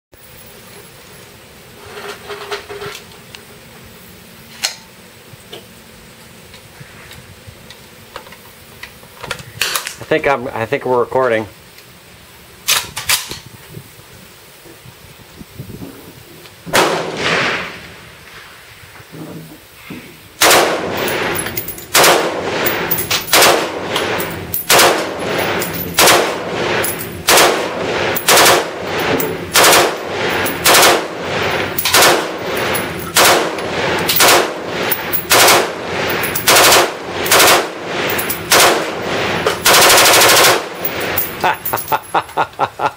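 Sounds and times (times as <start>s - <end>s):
rifle shots: 16.7s - 17.9s, 20.4s - 41.4s.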